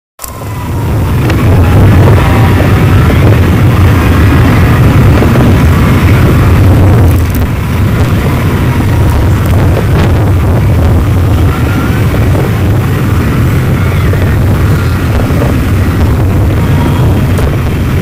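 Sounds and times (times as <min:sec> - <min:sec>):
heavy low rumble: 0:00.2 - 0:18.0
wall of distorted noise: 0:00.2 - 0:18.0.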